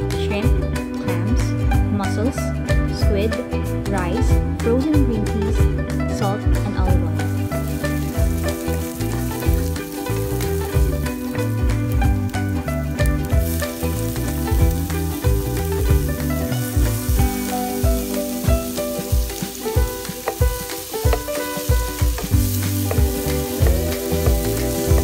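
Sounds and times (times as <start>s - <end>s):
background music with bass line: 0.0s - 25.0s
vegetables sizzling in oil: 6.2s - 25.0s
wooden spatula stirring pan: 16.6s - 25.0s.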